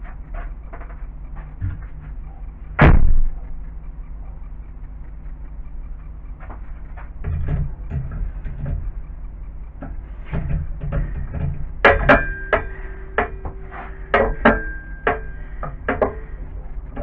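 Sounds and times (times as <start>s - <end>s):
steady low hum: 0.0s - 17.0s
metal parts knocking and clinking: 10.4s - 17.0s.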